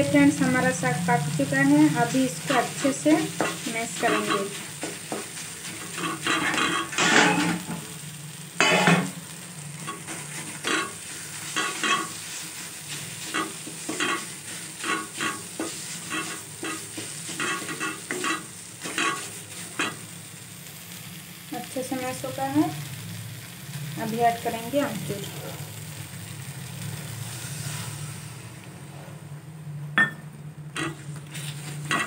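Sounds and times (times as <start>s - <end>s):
pan sizzling: 0.0s - 28.8s, 30.0s - 32.0s
wooden spatula scraping metal pan: 2.6s - 7.7s, 9.9s - 20.0s, 30.8s - 32.0s.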